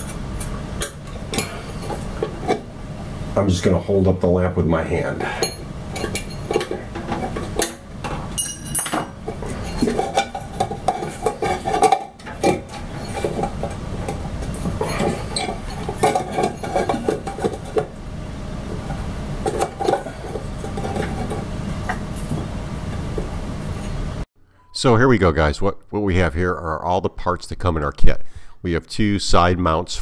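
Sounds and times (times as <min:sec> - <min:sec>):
steady low hum: 0:00.0 - 0:26.3
metal clinks and knocks: 0:05.4 - 0:17.9.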